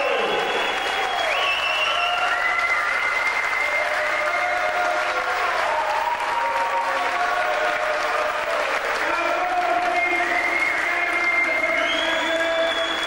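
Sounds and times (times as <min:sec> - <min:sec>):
crowd applauding and cheering: 0:00.0 - 0:13.0.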